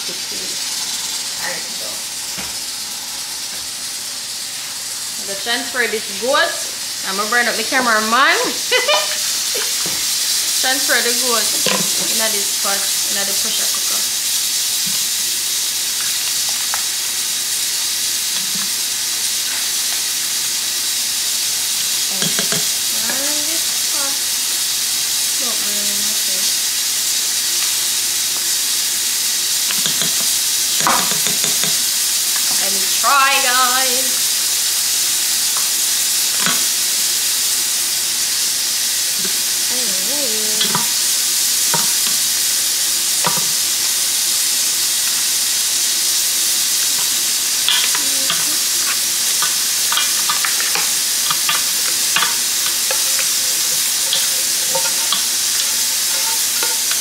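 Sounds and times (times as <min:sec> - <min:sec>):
meat sizzling in a pot: 0:00.0 - 0:57.0
utensil scraping and tapping pot: 0:11.6 - 0:12.2, 0:22.2 - 0:23.2, 0:29.7 - 0:32.6, 0:40.6 - 0:41.0, 0:41.6 - 0:42.2, 0:43.2 - 0:43.6, 0:46.9 - 0:57.0.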